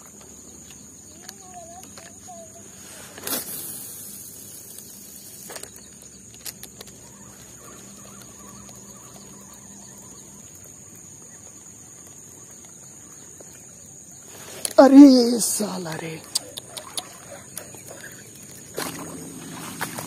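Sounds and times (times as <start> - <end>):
high-pitched hiss: 1.0 - 6.3
faint clicks: 16.2 - 18.9.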